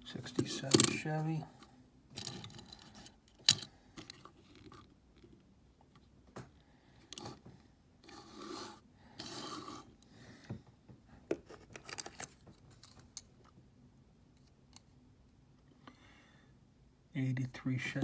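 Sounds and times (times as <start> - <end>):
toy trucks scraping on table: 8.0 - 10.0.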